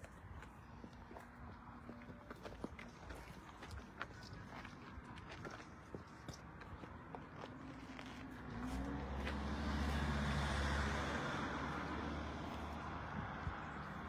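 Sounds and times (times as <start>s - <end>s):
motor vehicle passing: 7.0s - 14.0s.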